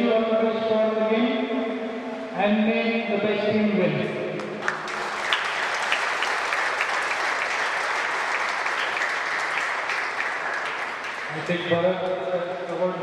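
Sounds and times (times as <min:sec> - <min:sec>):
crowd applauding: 0:04.4 - 0:11.8.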